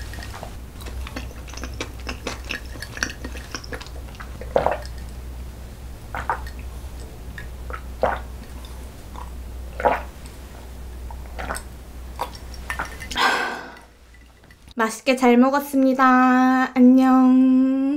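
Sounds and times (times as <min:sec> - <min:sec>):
person gulping swallows: 0:00.8 - 0:05.0, 0:07.7 - 0:10.1, 0:11.2 - 0:14.0.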